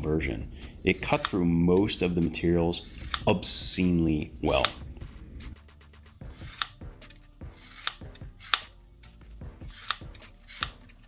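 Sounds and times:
shears snipping webbing: 0:01.0 - 0:01.9, 0:02.8 - 0:04.8, 0:06.2 - 0:11.0.

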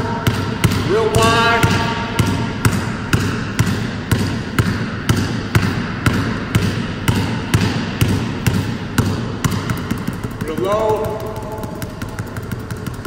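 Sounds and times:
basketball bouncing on hardwood: 0:00.1 - 0:13.0.

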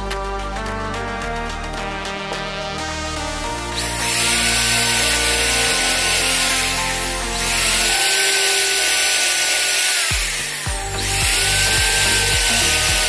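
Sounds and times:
electric drill boring through metal: 0:03.8 - 0:13.0.

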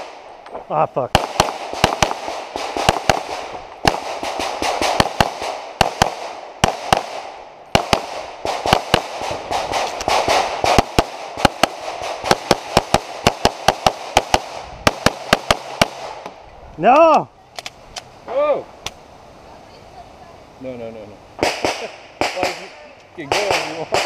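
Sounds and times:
rapid pistol fire: 0:01.1 - 0:16.2, 0:21.4 - 0:24.0.

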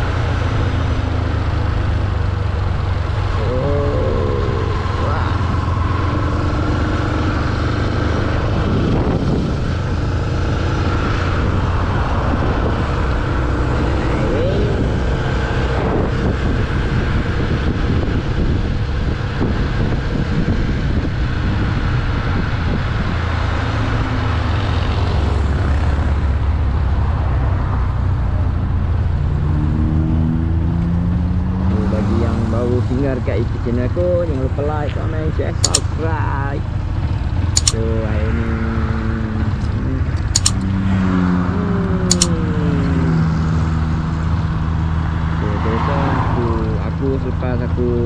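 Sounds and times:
wind rumble on microphone: 0:00.0 - 0:48.0
motorcycle engine running: 0:31.0 - 0:45.7.

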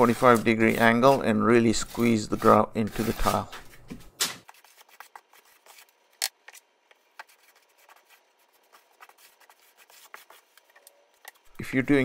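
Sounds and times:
grout float scraping tile: 0:00.0 - 0:03.5.

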